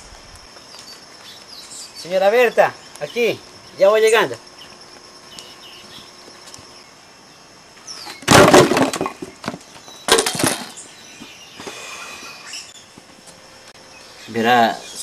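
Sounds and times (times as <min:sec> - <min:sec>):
insects chirping: 0:00.0 - 0:15.0
firewood crashing onto logs: 0:08.0 - 0:10.8.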